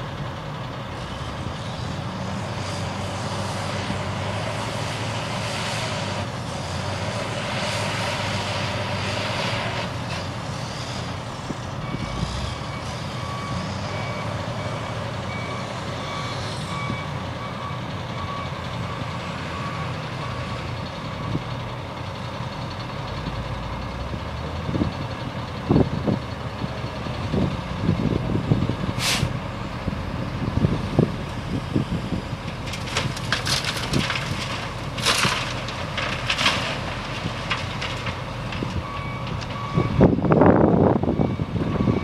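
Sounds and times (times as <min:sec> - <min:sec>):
diesel engines running: 0:00.0 - 0:42.0
reversing alarm beeping: 0:11.8 - 0:20.5, 0:38.8 - 0:40.2, 0:41.1 - 0:42.0
short sharp hiss: 0:29.0 - 0:29.4.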